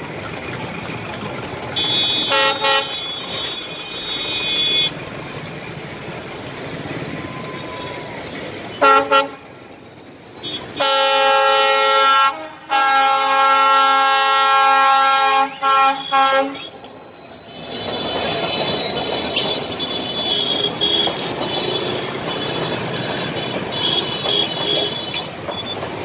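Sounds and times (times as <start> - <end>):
locomotive horn blasts: 1.8 - 5.0, 8.8 - 9.5, 10.4 - 16.9, 17.6 - 25.4.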